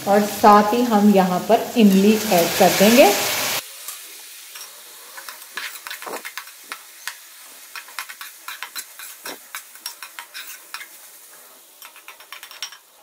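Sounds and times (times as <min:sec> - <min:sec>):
food frying with sizzle: 0:00.0 - 0:13.0
metal spatula scraping pan: 0:04.6 - 0:12.9.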